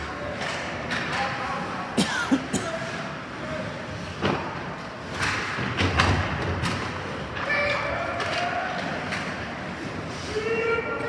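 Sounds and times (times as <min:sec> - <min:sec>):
hockey sticks and puck clacking: 0:00.0 - 0:01.8, 0:04.1 - 0:11.0.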